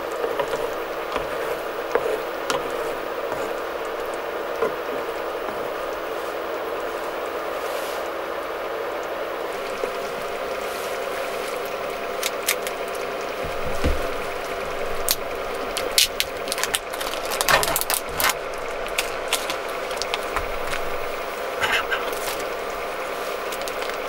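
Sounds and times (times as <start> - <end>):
soup simmering in pan: 0.0 - 24.0
plastic film peeling crackle: 11.4 - 12.9, 15.0 - 21.2, 21.9 - 24.0.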